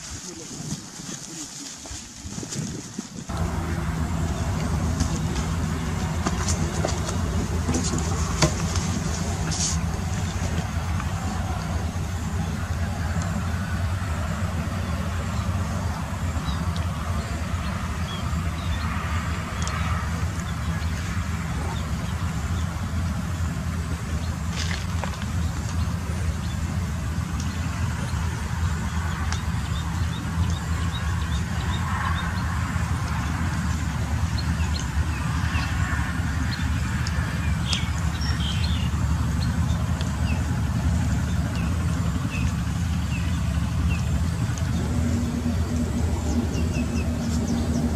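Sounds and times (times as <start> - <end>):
low engine hum: 0.0 - 47.9
higher steady tone: 3.3 - 19.5, 41.2 - 47.9.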